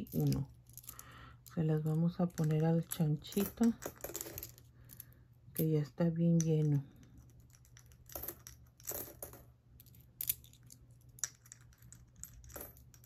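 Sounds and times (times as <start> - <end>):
coins clinking into piggy bank: 2.4 - 5.7, 7.4 - 13.0.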